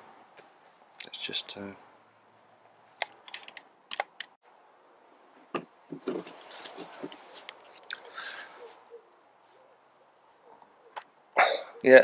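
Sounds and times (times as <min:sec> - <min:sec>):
microphone rubbing and rustling: 0:05.4 - 0:09.6.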